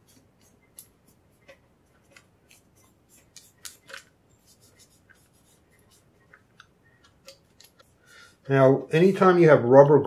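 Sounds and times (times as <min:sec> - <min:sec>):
cloth rubbing on metal: 0:00.0 - 0:06.4.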